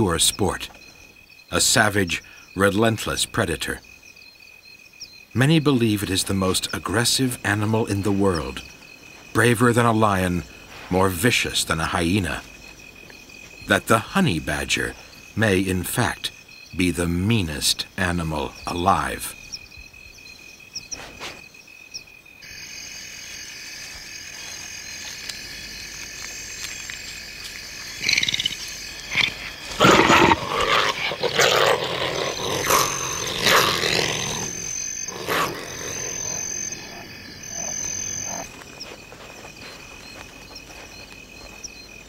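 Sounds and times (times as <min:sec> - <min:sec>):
crickets and night insects: 0:00.0 - 0:42.0
animal snarling and growling: 0:27.9 - 0:38.6.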